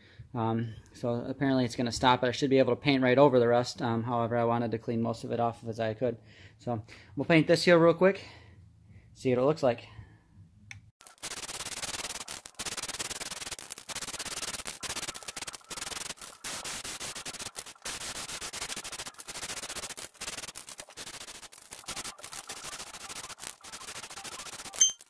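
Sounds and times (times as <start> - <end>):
spray can hissing: 11.0 - 24.8.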